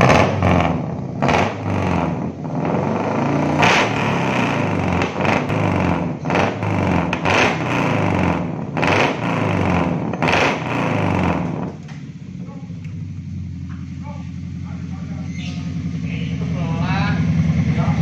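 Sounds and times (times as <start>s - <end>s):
brighter exhaust bursts: 0.0s - 11.8s
deep wavering exhaust note: 0.0s - 18.0s.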